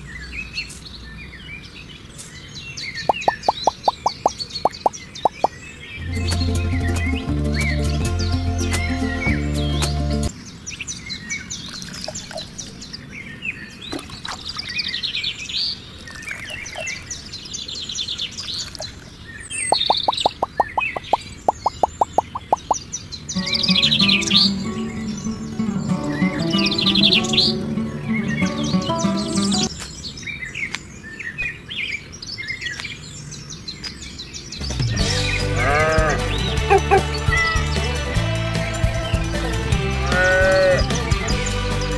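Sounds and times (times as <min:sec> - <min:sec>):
songbirds chirping and twittering: 0:00.0 - 0:41.9
rapid run of short chirps: 0:03.1 - 0:05.6, 0:19.6 - 0:22.9
background music with steady bass: 0:06.0 - 0:10.3, 0:34.7 - 0:41.9
animal bleating: 0:35.4 - 0:37.6, 0:40.0 - 0:41.0.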